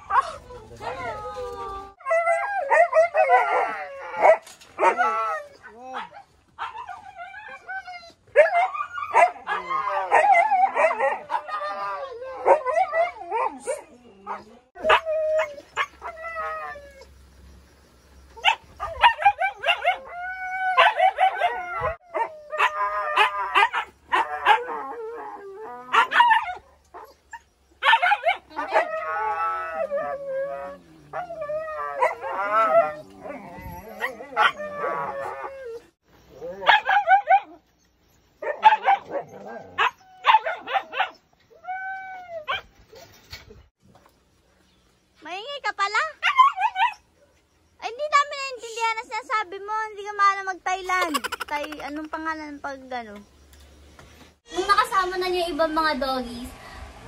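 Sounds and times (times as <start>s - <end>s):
dog howling and yipping: 0.0s - 17.1s, 18.4s - 37.6s, 38.4s - 42.7s.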